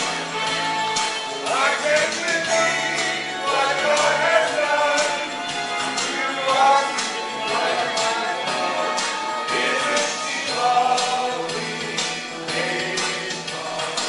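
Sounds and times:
pop choir singing: 0:00.0 - 0:14.0
steady percussive beat: 0:00.0 - 0:14.0.

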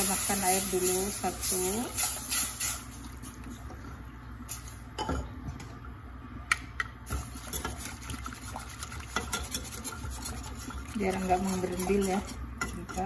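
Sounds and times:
utensils scraping a pot: 0:08.8 - 0:13.0.

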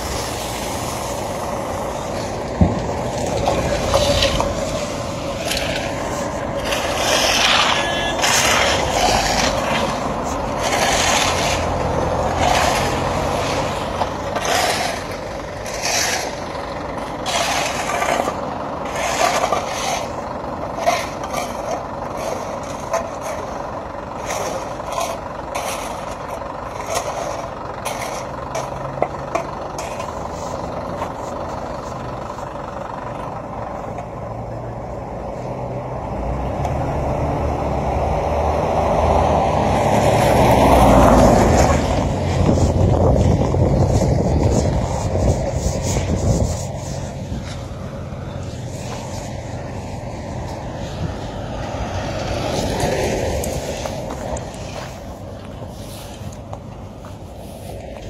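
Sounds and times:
vehicle on wet road: 0:00.0 - 0:58.0.

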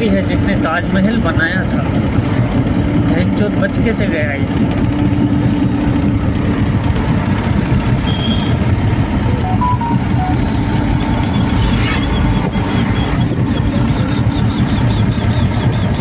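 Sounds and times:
car engine and road noise: 0:00.0 - 0:16.0
rapid high-pitched beeping: 0:09.2 - 0:14.5.

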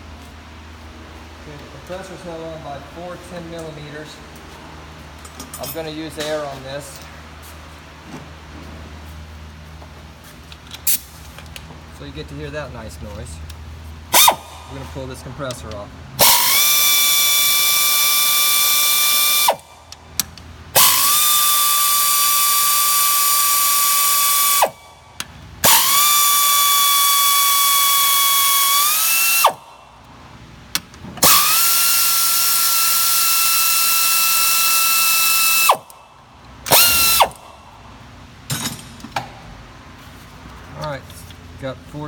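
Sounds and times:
air ratchet whining: 0:14.1 - 0:14.8, 0:16.2 - 0:29.8, 0:31.2 - 0:36.0, 0:36.6 - 0:37.6.

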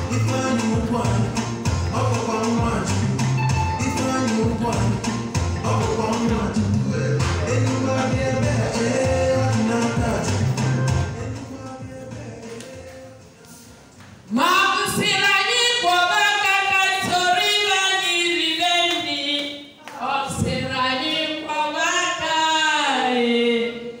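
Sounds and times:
voices singing: 0:00.0 - 0:14.5.

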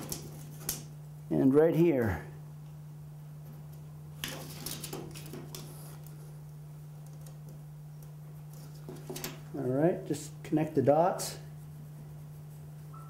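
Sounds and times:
steady low hum: 0:00.0 - 0:13.0
pencil scratching on drywall: 0:11.3 - 0:13.0.

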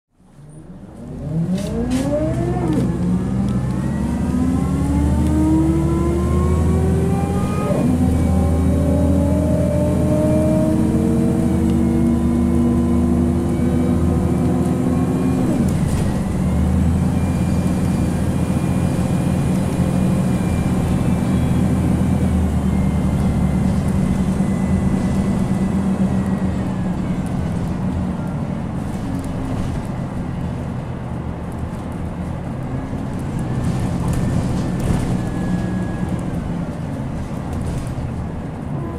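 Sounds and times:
diesel engine hum: 0:00.1 - 0:38.9
gearbox whine: 0:11.2 - 0:28.4.

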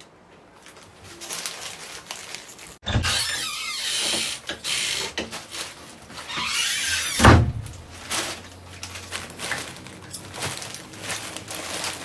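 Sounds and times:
rustling: 0:00.0 - 0:12.0
door banging shut: 0:02.8 - 0:04.3, 0:06.4 - 0:07.8.

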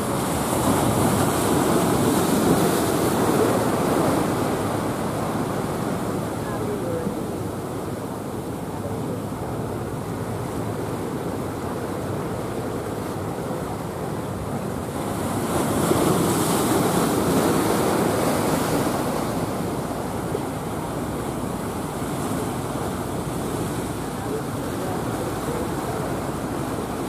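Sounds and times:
ocean surf breaking: 0:00.0 - 0:27.0.

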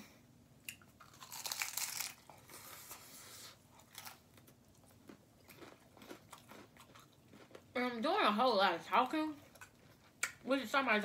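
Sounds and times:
tacos crunching when bitten: 0:00.7 - 0:03.0, 0:03.7 - 0:07.7
chewing with clicks and crinkles: 0:00.7 - 0:08.0, 0:08.9 - 0:10.5.

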